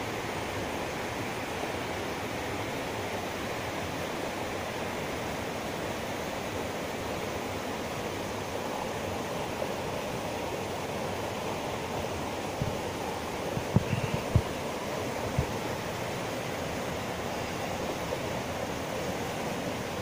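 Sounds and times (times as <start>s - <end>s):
river rushing over boulders: 0.0s - 20.0s.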